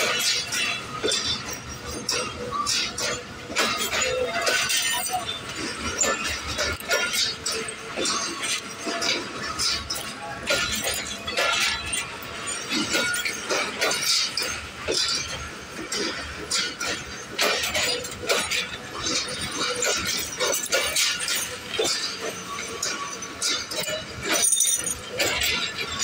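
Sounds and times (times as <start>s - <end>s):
low train rumble: 0.0s - 26.0s
train wheels clanking: 0.0s - 26.0s.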